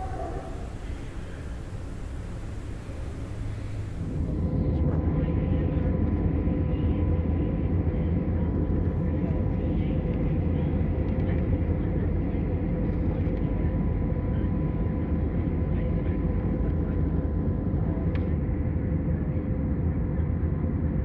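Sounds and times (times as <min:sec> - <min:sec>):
jet airliner cabin drone: 0:00.0 - 0:18.8.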